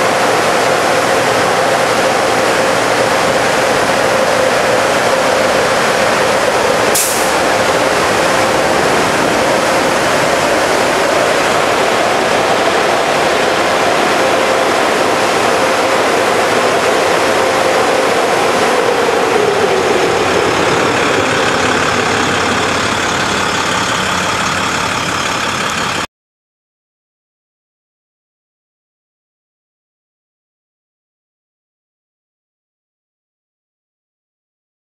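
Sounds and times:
truck engine hum: 0.0s - 26.1s
truck rushing noise: 0.0s - 26.1s
short sharp hiss: 6.9s - 7.4s.

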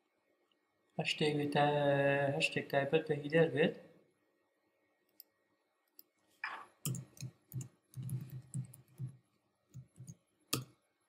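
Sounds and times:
keyboard typing: 6.4s - 10.2s.

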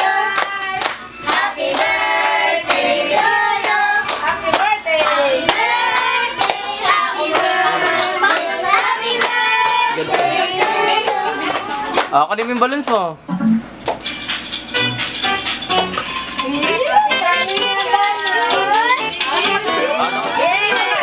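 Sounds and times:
children and adults singing: 0.0s - 11.9s.

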